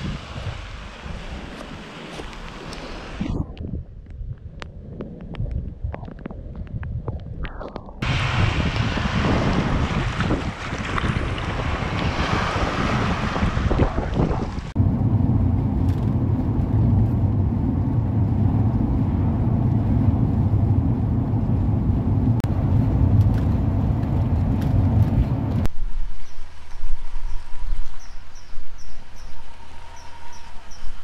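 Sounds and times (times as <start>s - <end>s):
wind on microphone: 0.0s - 31.0s
waves breaking over rocks: 8.0s - 14.8s
road and engine rumble in cab: 13.2s - 25.7s.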